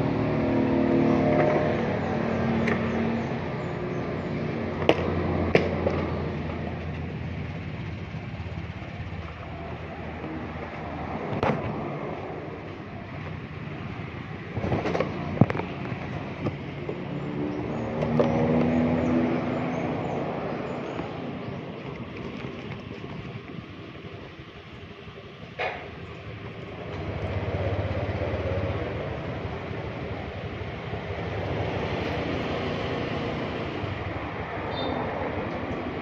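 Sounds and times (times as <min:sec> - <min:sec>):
motorcycle engine running: 0:00.0 - 0:10.9, 0:25.9 - 0:34.9
road and wind noise: 0:00.0 - 0:36.0.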